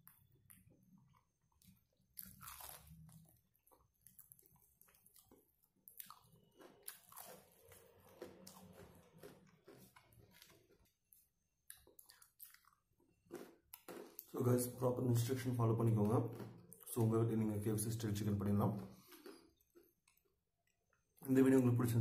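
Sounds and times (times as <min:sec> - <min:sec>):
person chewing crispy food: 0:00.0 - 0:14.4, 0:18.9 - 0:21.2.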